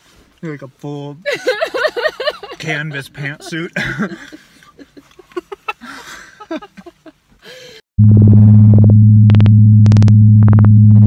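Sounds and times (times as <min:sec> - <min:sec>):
low electronic buzzing drone: 0:08.0 - 0:11.0.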